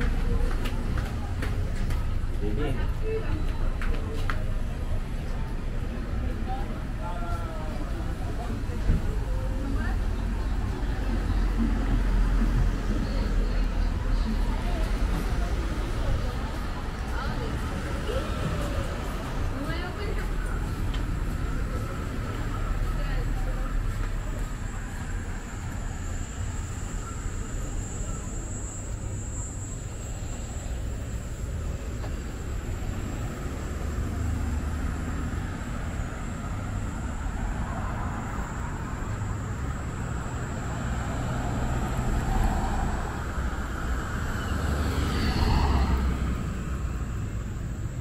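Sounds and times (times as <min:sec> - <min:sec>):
cars driving past: 0:30.0 - 0:48.0.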